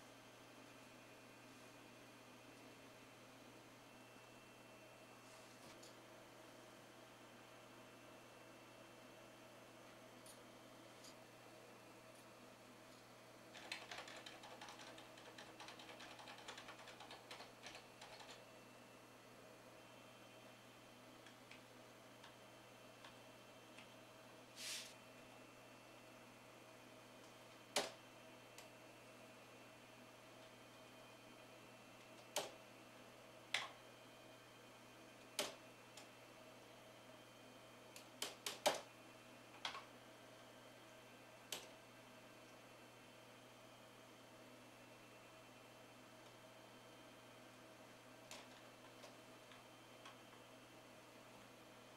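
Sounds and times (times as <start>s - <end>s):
faint steady hum: 0.0s - 51.9s
keyboard keys clicking: 13.6s - 18.4s.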